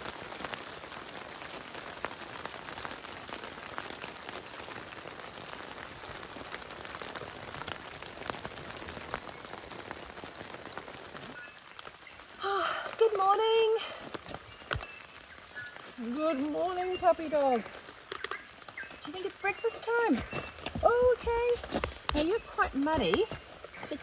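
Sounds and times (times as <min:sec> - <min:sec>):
rain on a tarp: 0:00.0 - 0:24.0
drops ticking on tarp: 0:12.7 - 0:24.0.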